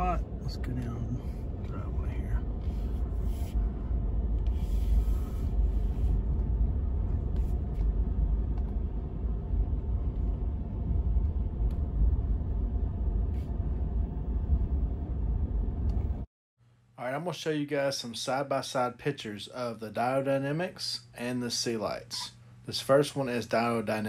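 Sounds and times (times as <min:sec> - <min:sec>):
pickup truck low rumble: 0:00.0 - 0:16.3.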